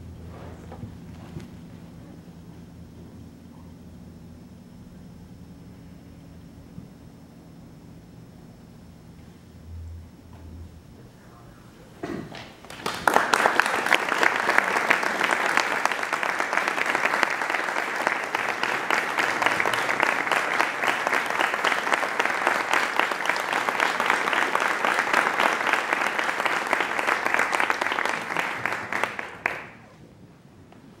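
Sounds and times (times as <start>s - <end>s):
audience applauding: 12.3s - 30.0s.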